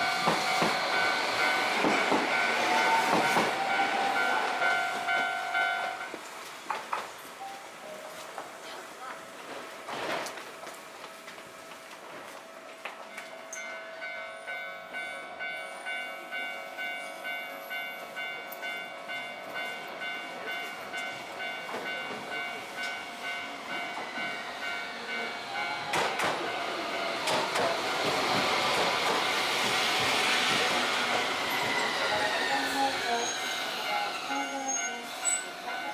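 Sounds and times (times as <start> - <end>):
tram wheels rumbling on rails: 0.0 - 35.9
level crossing bell ringing: 3.7 - 6.1.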